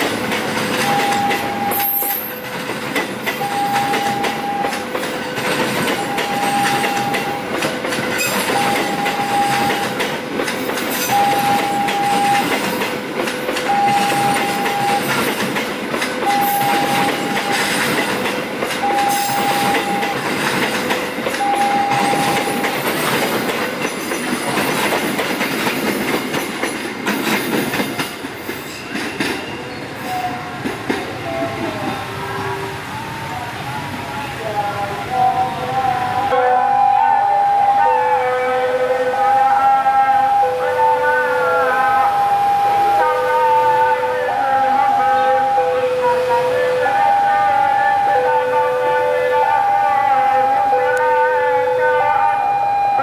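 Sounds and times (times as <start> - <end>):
train coaches rolling past: 0.0 - 53.0
two-note warning tone: 0.8 - 2.2, 3.4 - 4.8, 11.1 - 12.5, 13.6 - 15.1, 16.2 - 17.7, 18.8 - 20.3, 21.4 - 22.8.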